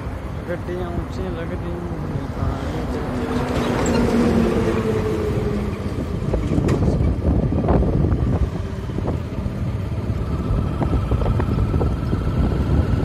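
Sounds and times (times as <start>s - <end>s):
wind buffeting microphone: 0.0s - 13.0s
motorbike engine running: 7.8s - 13.0s.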